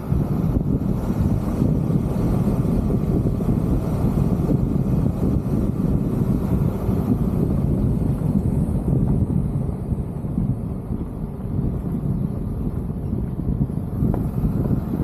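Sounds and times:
vehicle road noise on dirt road: 0:00.0 - 0:15.0
wind noise on microphone: 0:00.0 - 0:15.0.

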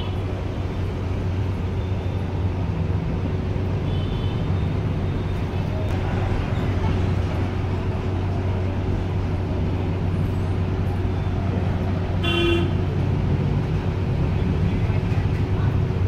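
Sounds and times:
noisy background: 0:04.6 - 0:16.0.

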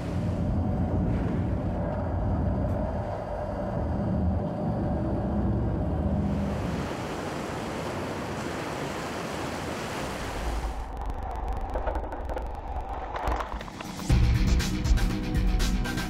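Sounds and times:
surf and spray rushing: 0:06.1 - 0:11.0.

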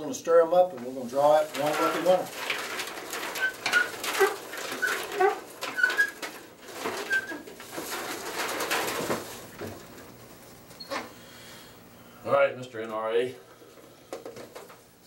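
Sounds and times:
raffle drum knocking and rattling: 0:01.4 - 0:10.0
metal raffle drum squeaking: 0:02.5 - 0:08.1.

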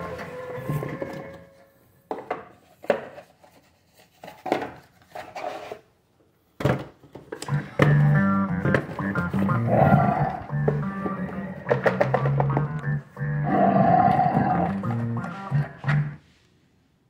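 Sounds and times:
music: 0:00.0 - 0:01.8, 0:07.4 - 0:16.2.

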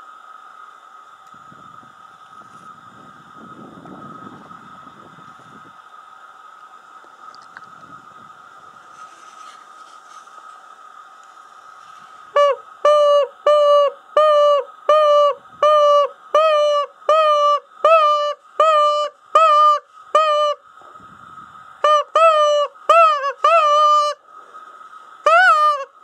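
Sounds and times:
rabbit distress call cries: 0:12.3 - 0:20.6, 0:21.8 - 0:24.2, 0:25.2 - 0:26.0.

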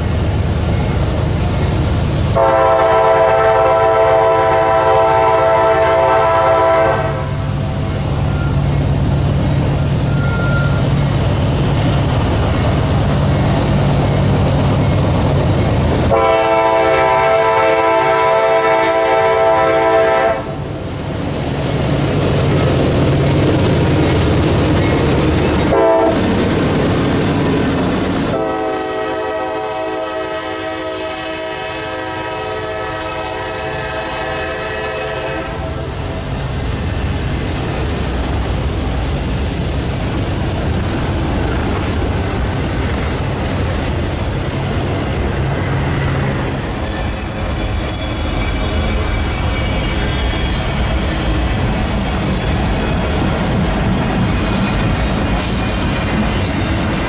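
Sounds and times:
diesel locomotive rumble: 0:00.0 - 0:57.0
train wheels rolling: 0:00.0 - 0:57.0
train air horn: 0:02.3 - 0:07.6, 0:16.1 - 0:20.6, 0:25.6 - 0:26.3, 0:28.3 - 0:36.0.

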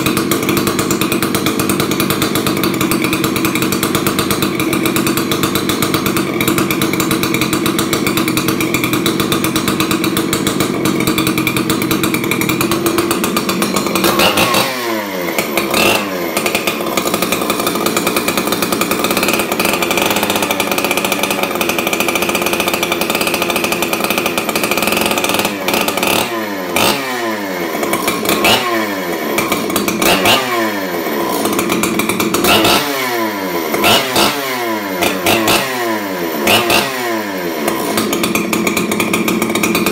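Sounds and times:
chainsaw revving: 0:00.0 - 0:39.9.

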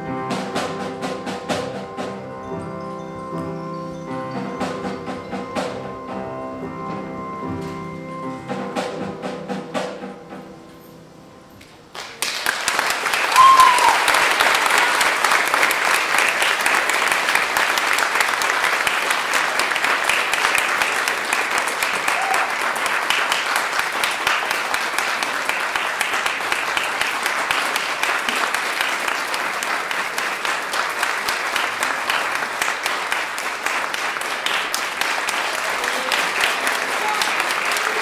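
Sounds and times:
audience applauding: 0:11.9 - 0:38.0.

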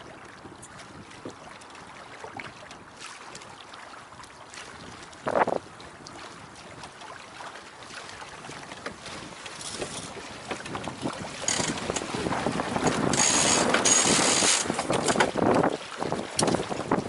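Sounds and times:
water splashing along hull: 0:00.0 - 0:17.0
wind buffeting microphone: 0:04.8 - 0:07.0, 0:08.3 - 0:17.0.

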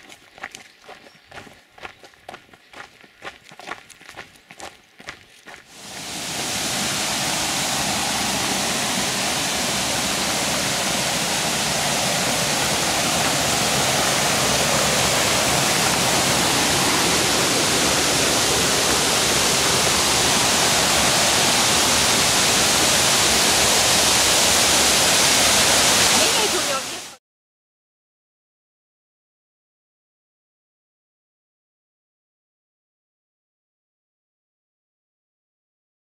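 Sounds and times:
creek rushing over rocks: 0:05.6 - 0:27.2.

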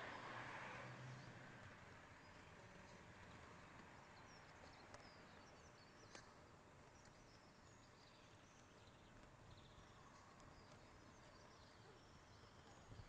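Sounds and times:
faint clicks: 0:06.0 - 0:07.2, 0:10.1 - 0:10.9.

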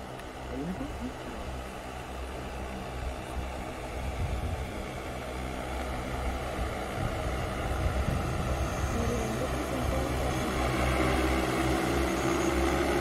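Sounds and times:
drone rotors whirring: 0:00.0 - 0:13.0.

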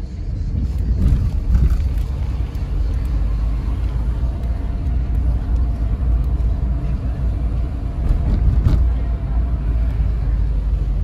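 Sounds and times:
car engine and tyre rumble: 0:00.0 - 0:11.0.

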